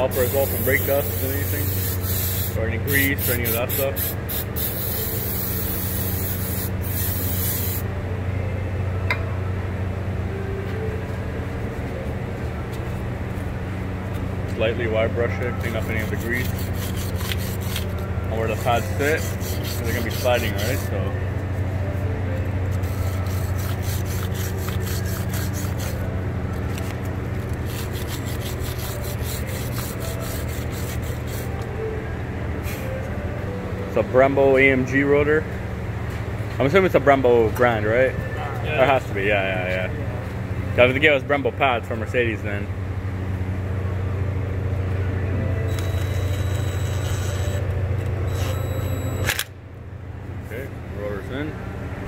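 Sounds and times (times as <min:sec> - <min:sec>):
wire brush scrubbing metal: 0:00.0 - 0:07.8, 0:15.6 - 0:21.0, 0:22.7 - 0:26.0, 0:27.7 - 0:31.6
steady low hum: 0:00.0 - 0:52.0.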